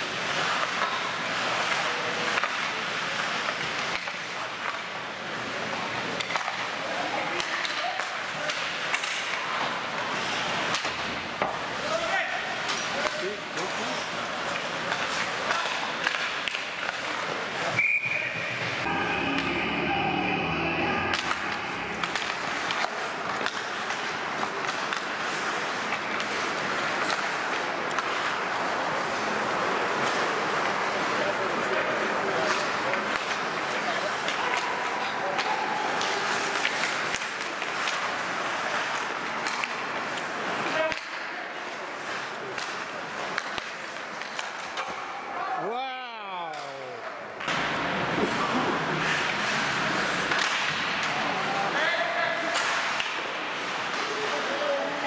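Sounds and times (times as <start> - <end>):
hockey sticks clacking on puck: 0.0 - 17.8, 21.1 - 45.3, 46.4 - 55.0
skates scraping on ice: 0.0 - 45.2, 47.4 - 55.0
held tone: 18.8 - 22.2.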